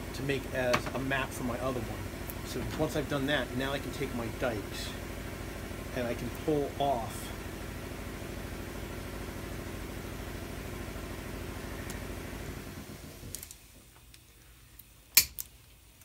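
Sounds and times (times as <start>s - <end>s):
motor-driven machine humming: 0.0s - 13.4s
cutters snapping metal line: 15.1s - 15.5s.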